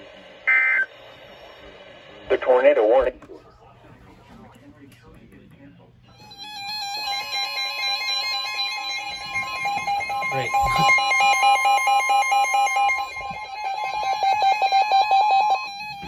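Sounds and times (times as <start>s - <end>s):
steady high alarm tone: 0.4s - 1.8s, 6.1s - 16.0s.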